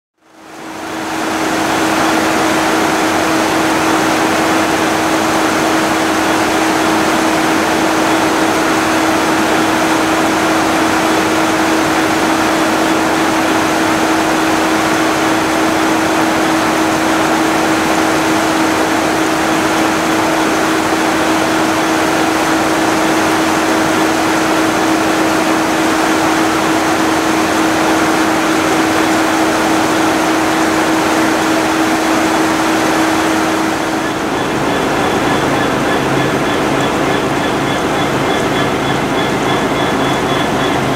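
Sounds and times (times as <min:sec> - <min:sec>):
diesel locomotive idling: 0:18.0 - 0:40.9.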